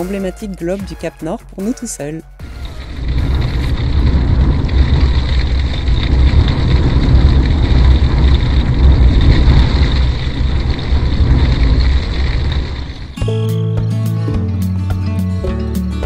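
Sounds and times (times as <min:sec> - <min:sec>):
strong wind buffeting: 0:02.4 - 0:13.3.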